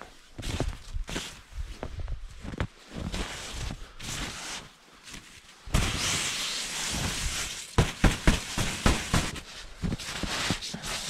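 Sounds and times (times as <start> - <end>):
snow sliding off tent fabric: 3.0 - 4.8, 5.7 - 11.0
hand slapping tent fabric: 5.7 - 11.0.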